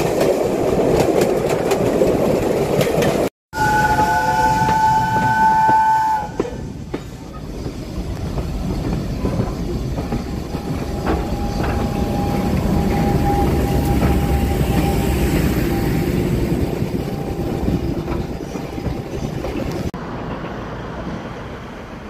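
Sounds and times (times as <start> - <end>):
diesel locomotive engine passing: 2.9 - 22.0
train wheels clicking over rail joints: 4.0 - 21.2.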